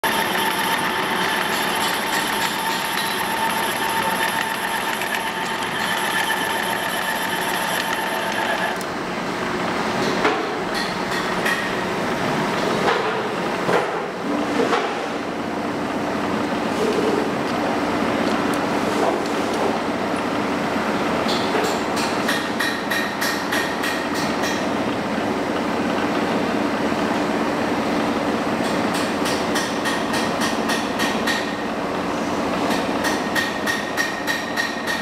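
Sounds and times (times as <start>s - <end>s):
machinery whining: 0.0s - 8.9s.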